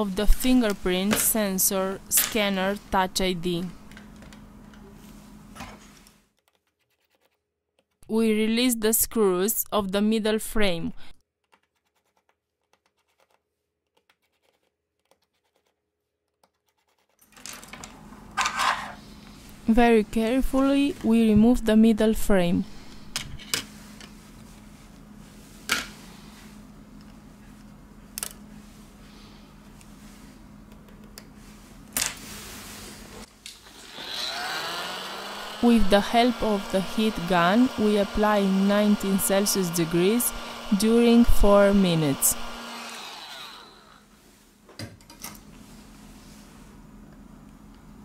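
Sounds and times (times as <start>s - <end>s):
low steady hum: 17.6s - 34.3s.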